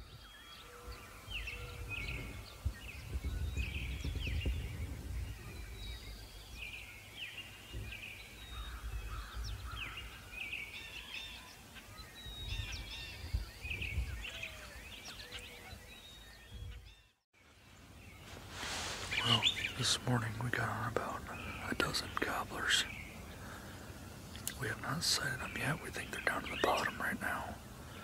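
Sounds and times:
songbirds singing and calling: 0.0 - 28.0.

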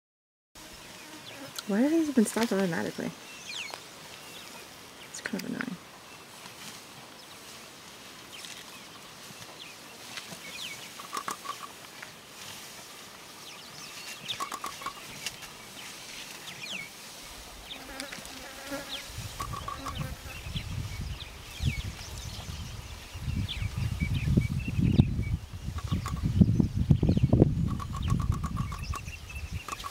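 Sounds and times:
insects buzzing: 0.6 - 5.2, 10.5 - 11.8, 13.9 - 21.8, 25.4 - 26.4, 27.5 - 29.9
birds chirping: 0.6 - 11.8, 13.4 - 29.9
scattered clicks: 11.0 - 11.7, 14.3 - 15.4, 27.7 - 29.9
bird trill: 25.7 - 26.4, 27.6 - 29.9.

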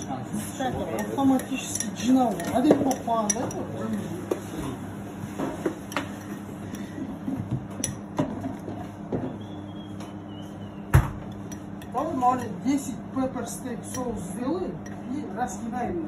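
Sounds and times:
steady hum: 0.0 - 16.0
spoon clinking on glass jar: 0.9 - 4.1.

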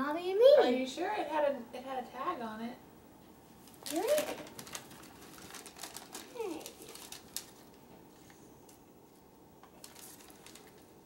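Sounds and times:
paper rustling and crinkling: 3.6 - 8.8, 9.6 - 11.0.

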